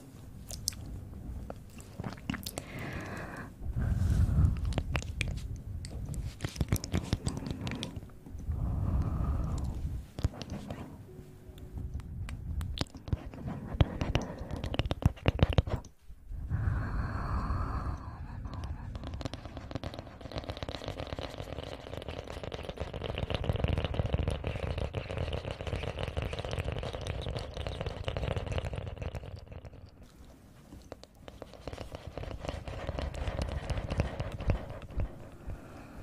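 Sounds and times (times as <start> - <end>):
hands rubbing crackly rustle: 3.9 - 8.1.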